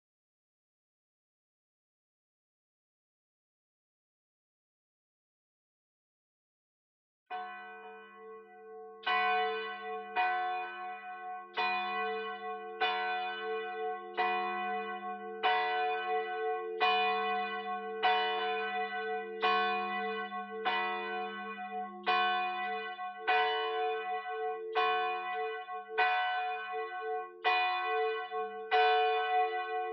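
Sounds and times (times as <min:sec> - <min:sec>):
church bell tolling: 0:07.3 - 0:29.9.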